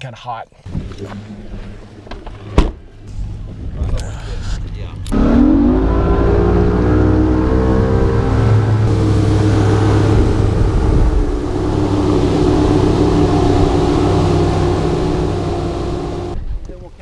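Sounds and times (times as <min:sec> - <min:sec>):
rush of wind and water: 0:05.3 - 0:17.0
outboard motor running: 0:05.7 - 0:16.4.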